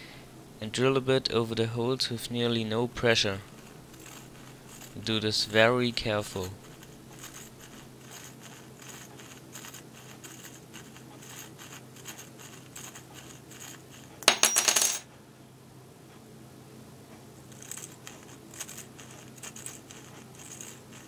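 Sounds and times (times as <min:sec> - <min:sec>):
drill bit scratching plastic: 0:03.4 - 0:14.2, 0:17.6 - 0:21.0.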